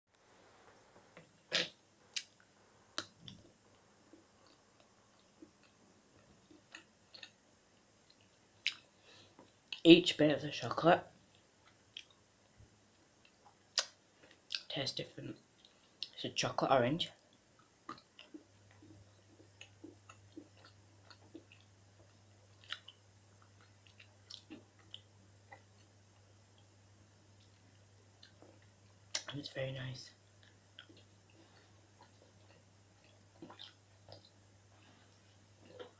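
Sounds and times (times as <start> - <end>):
person chewing: 1.5 - 9.8, 11.3 - 12.2, 17.3 - 26.7, 27.4 - 29.3, 30.4 - 35.9
mouth smacks: 13.7 - 14.7
clicks and ticks from eating: 17.2 - 25.9, 30.4 - 34.4.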